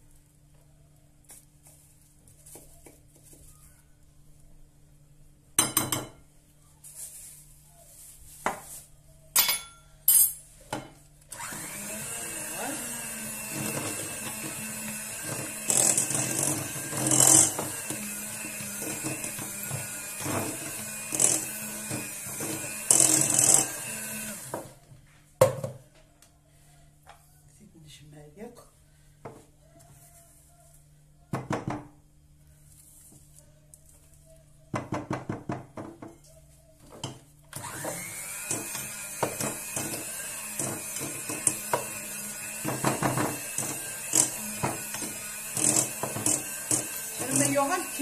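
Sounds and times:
electric hand mixer running: 11.3s - 24.8s, 37.6s - 48.0s.

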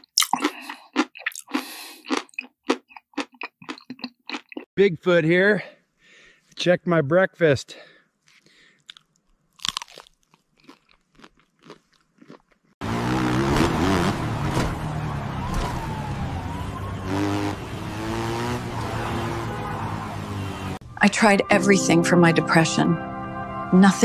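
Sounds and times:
crunching and chewing nuts: 0.0s - 4.7s, 8.2s - 12.8s
dirt bike engine revving: 12.8s - 20.8s.

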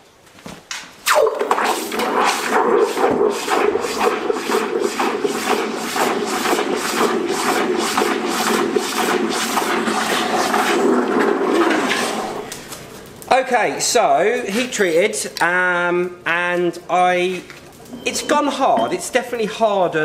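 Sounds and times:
water churning: 1.1s - 12.6s
hot steel hissing in water: 1.6s - 11.0s.

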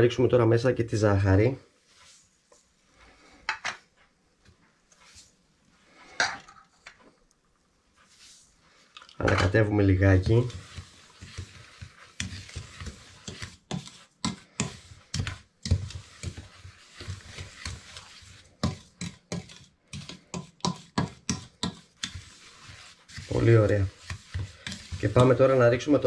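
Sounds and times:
wooden spoon scraping metal pot: 4.9s - 7.0s, 8.0s - 26.0s.

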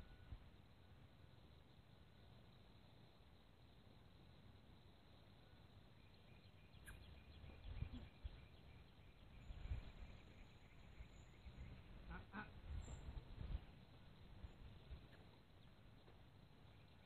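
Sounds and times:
faint high chirp: 0.0s - 0.5s, 5.3s - 11.9s.

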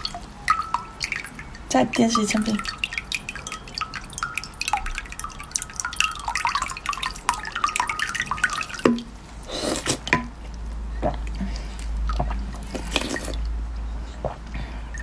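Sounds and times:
water dripping into glass mug: 0.0s - 9.2s, 10.1s - 11.4s.

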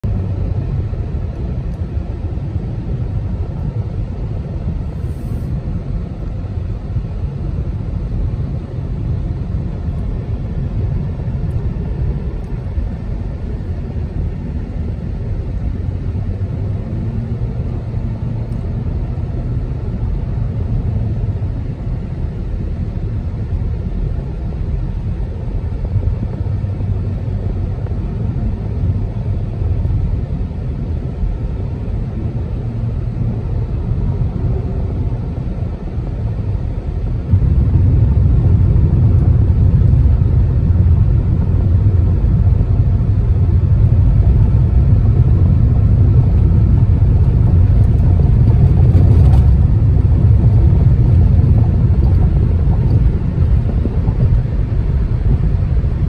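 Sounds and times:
car cabin road rumble: 0.0s - 56.0s.

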